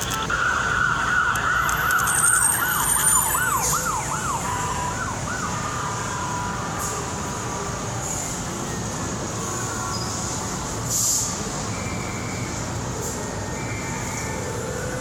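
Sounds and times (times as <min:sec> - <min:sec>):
siren wailing and warbling: 0:00.0 - 0:06.6.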